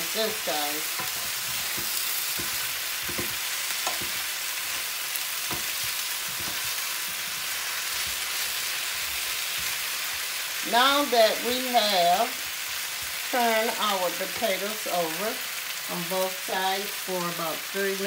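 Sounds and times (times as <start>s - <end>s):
potatoes sizzling in oil: 0.0s - 18.0s
wooden spatula scraping pan: 0.6s - 9.9s.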